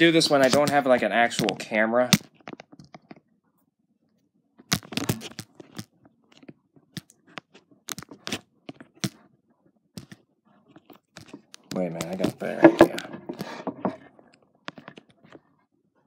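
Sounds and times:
device handling noise: 0:04.6 - 0:09.2, 0:09.9 - 0:15.4.

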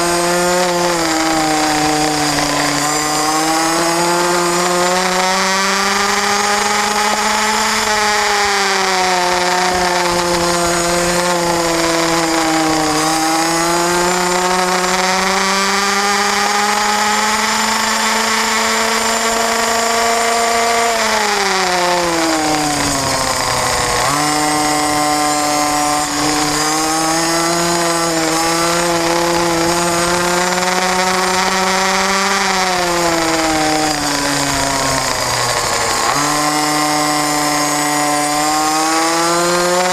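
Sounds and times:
motorcycle engine at high revs: 0:00.0 - 0:39.9.

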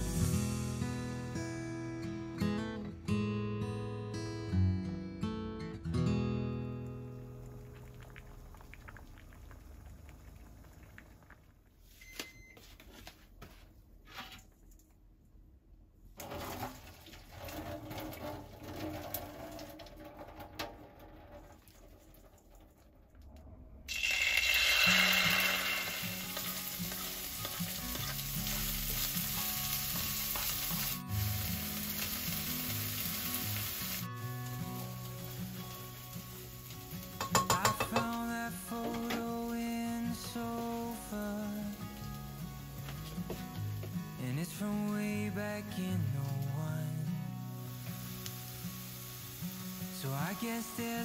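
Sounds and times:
food sizzling in frying pan: 0:00.0 - 0:00.7, 0:23.9 - 0:51.0
pasta draining into metal colander: 0:16.2 - 0:22.9, 0:23.9 - 0:27.3.

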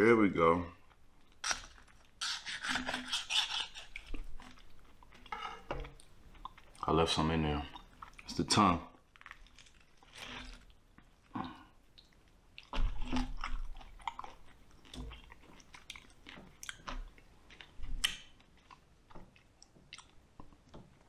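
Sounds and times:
person chewing meat: 0:09.1 - 0:21.0.

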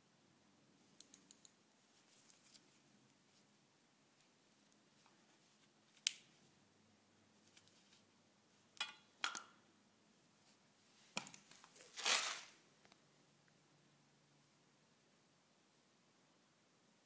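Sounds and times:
scraping rustles: 0:11.6 - 0:12.6.

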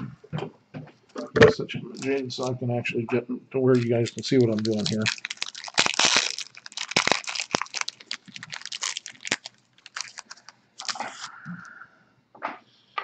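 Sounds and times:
wrapper crinkling: 0:01.9 - 0:02.2, 0:03.8 - 0:11.3.

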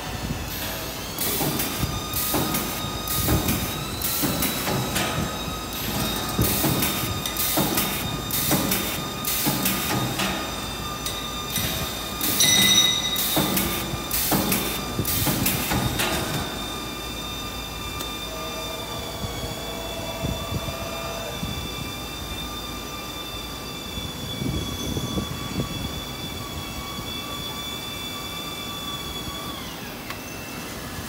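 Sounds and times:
steady high machine whine: 0:00.0 - 0:31.0
machine short bursts: 0:01.1 - 0:23.5
ringing tone: 0:11.1 - 0:13.8.

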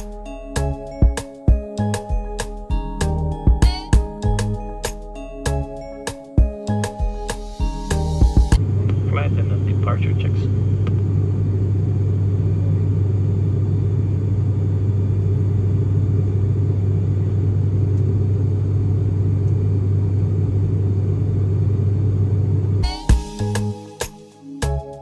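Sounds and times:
music: 0:00.0 - 0:09.3, 0:22.8 - 0:25.0.

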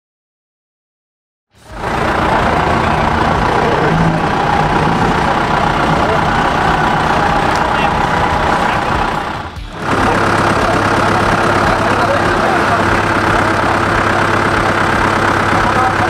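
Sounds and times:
off-road engine running: 0:01.6 - 0:16.0
voices: 0:01.6 - 0:16.0.

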